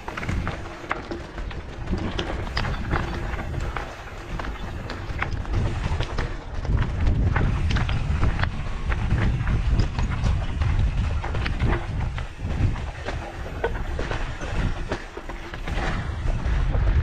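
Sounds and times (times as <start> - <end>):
bike rattling over rough trail: 0.0 - 17.0
wind on microphone: 0.0 - 17.0.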